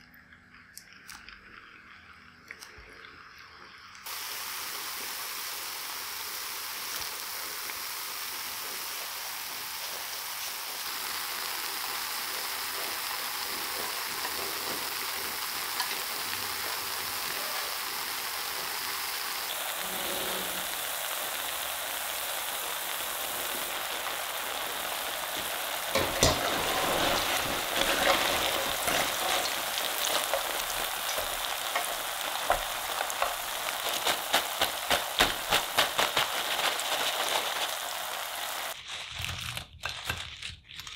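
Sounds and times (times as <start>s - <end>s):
potato sticks sizzling in oil: 3.7s - 38.8s
utensils clicking and knocking: 25.9s - 36.7s.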